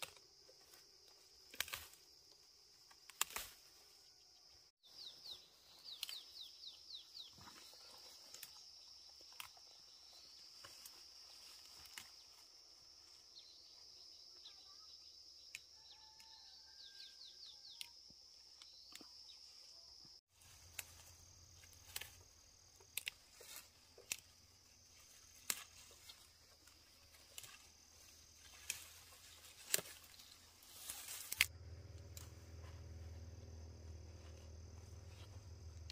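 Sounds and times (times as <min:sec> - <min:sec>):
insect chirring: 0:07.9 - 0:35.9.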